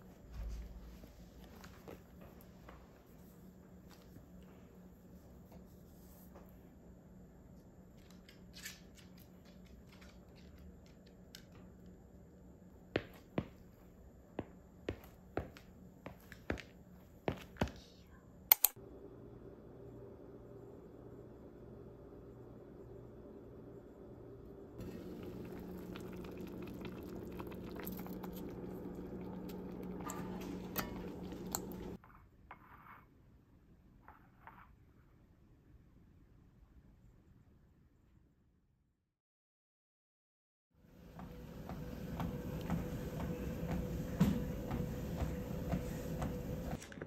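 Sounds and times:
steady low hum: 0.0s - 32.0s, 40.9s - 46.9s
footsteps on hardwood floor: 13.0s - 17.9s, 41.1s - 46.9s
pot simmering and bubbling: 24.8s - 32.0s.

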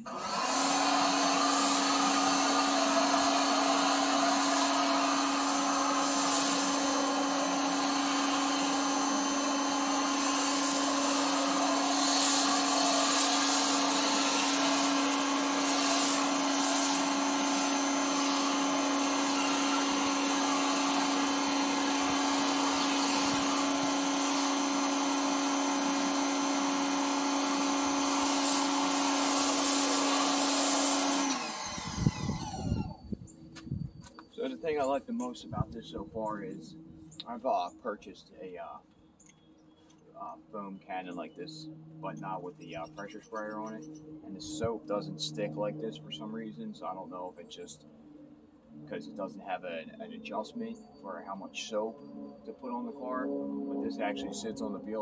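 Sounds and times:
pressure washer motor hum: 0.0s - 37.5s
foam spray hiss: 0.6s - 26.2s, 26.9s - 31.4s.

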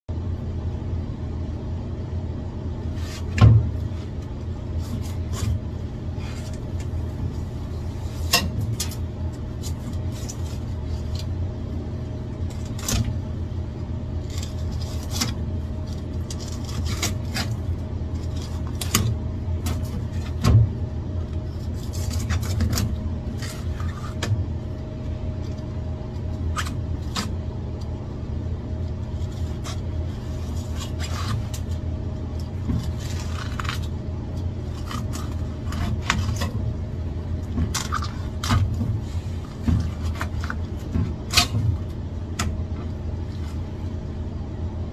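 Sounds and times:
low machine hum: 0.0s - 44.9s
knife scraping fish scales: 14.2s - 20.3s, 29.2s - 31.8s, 32.7s - 34.0s, 34.6s - 36.5s.

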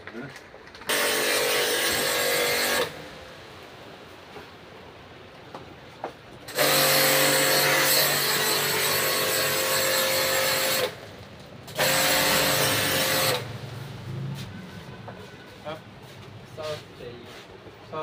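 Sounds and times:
pump motor tone: 0.9s - 3.1s, 6.5s - 11.0s, 11.7s - 14.4s.

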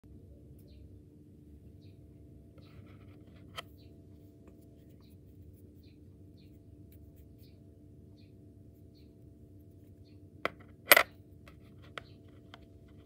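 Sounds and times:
faint electrical hum: 0.0s - 13.0s
coin click: 10.5s - 11.1s.

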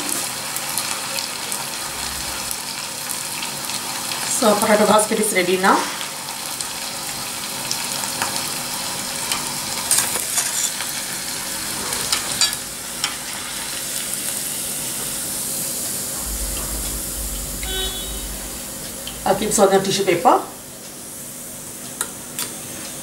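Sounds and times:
deep-frying sizzle in hot oil: 0.0s - 15.6s.

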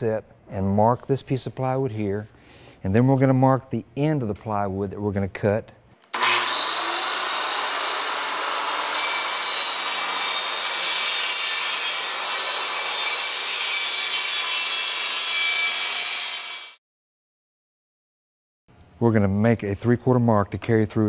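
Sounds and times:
circular saw cutting plywood: 6.0s - 16.8s.

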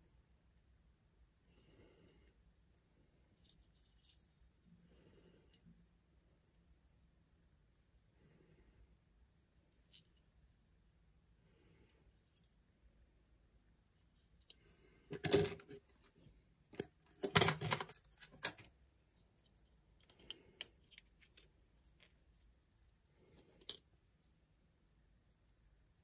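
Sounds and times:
handling clicks and rattles: 15.1s - 15.8s, 16.8s - 18.7s.

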